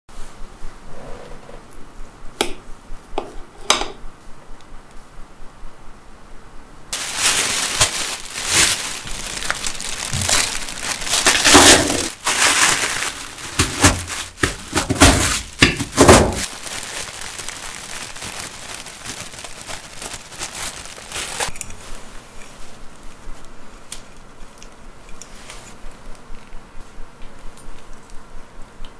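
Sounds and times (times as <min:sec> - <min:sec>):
biscuits crunching under rolling pin: 0:07.0 - 0:21.5
plastic bag crinkling: 0:07.0 - 0:23.3.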